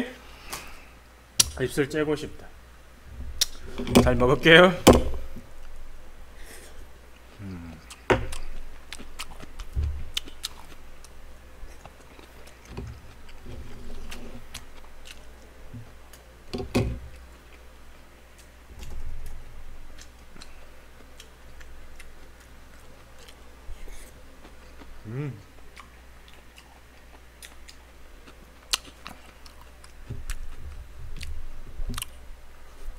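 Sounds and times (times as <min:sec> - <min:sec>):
person chewing food: 0:06.6 - 0:16.3, 0:18.3 - 0:32.2.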